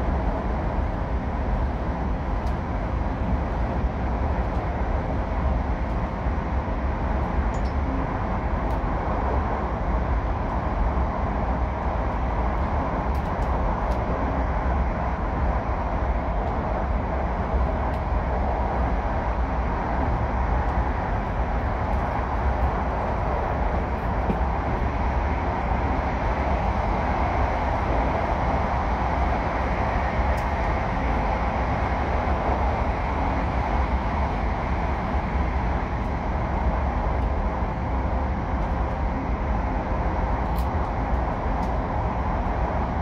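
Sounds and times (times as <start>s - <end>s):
train cabin running noise: 0.0s - 43.0s.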